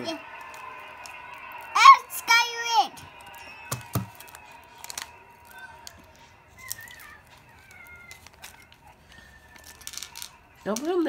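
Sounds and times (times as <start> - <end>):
pearls clicking in ceramic bowl: 9.6 - 11.0.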